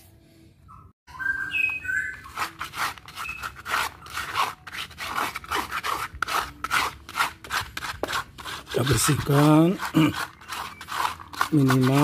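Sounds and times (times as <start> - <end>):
bird chirps: 0.6 - 2.4
brush scraping cage tray: 2.2 - 12.0.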